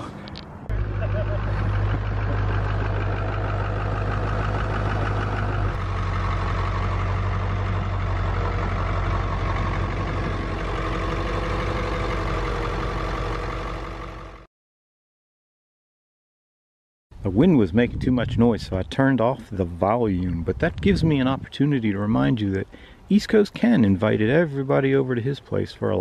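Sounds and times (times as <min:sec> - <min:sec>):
diesel engine idling: 0:00.0 - 0:14.5
wind rumble on microphone: 0:17.5 - 0:18.9, 0:20.2 - 0:21.5.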